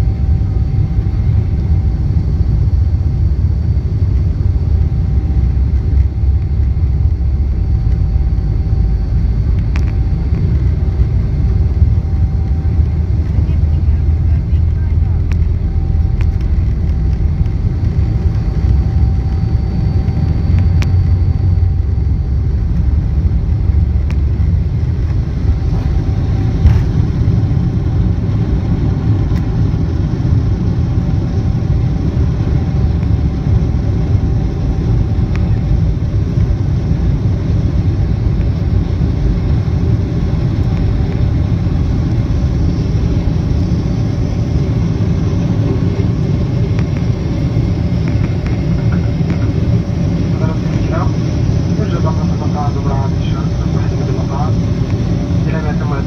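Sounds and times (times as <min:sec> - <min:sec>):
jet engine rumble with whine: 0:00.0 - 0:56.0.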